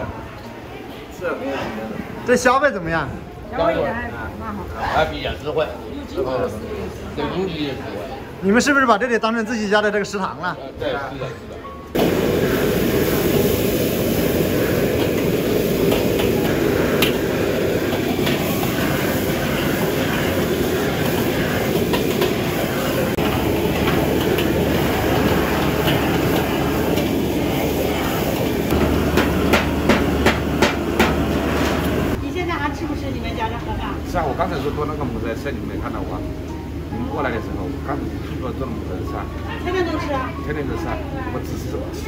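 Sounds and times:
gas wok burner roaring: 12.0s - 36.2s.

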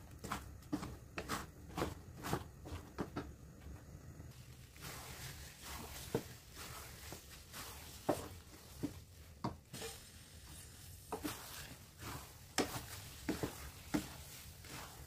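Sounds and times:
sticky rice squishing: 0.0s - 3.1s, 4.3s - 15.0s
wooden spatula knocking pan: 8.0s - 10.0s, 11.1s - 14.3s.

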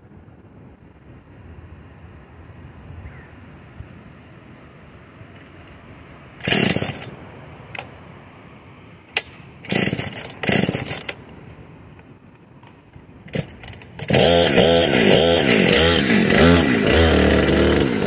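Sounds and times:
chainsaw engine running: 6.4s - 7.1s, 9.6s - 11.2s, 13.3s - 18.0s
chainsaw starter cord pulls: 6.4s - 7.1s, 9.1s - 11.2s, 13.3s - 18.0s.

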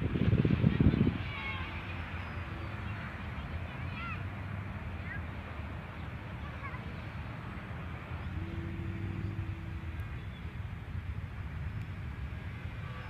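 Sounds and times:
wind noise on microphone: 0.0s - 13.0s
distant model airplane motor hum: 7.7s - 13.0s.

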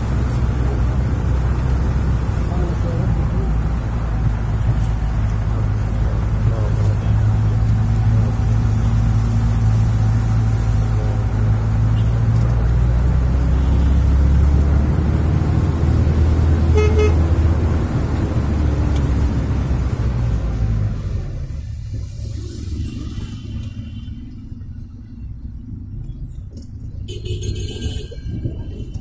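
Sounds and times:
minibus engine and road noise: 0.0s - 29.0s
car horn beeping: 11.9s - 12.2s, 16.6s - 17.4s, 27.1s - 29.0s.

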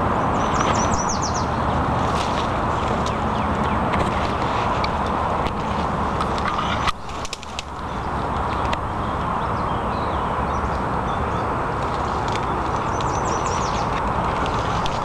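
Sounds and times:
bird chirping: 0.2s - 1.6s, 7.8s - 15.0s.

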